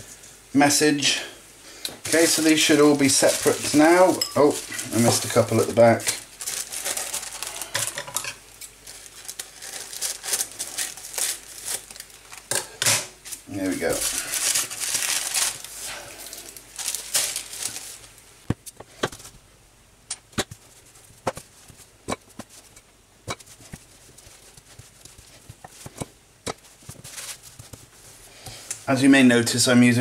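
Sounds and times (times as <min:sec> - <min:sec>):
paper rustling and crinkling: 0:02.0 - 0:08.0, 0:08.8 - 0:12.5, 0:13.2 - 0:18.2, 0:23.4 - 0:26.0, 0:26.6 - 0:28.3.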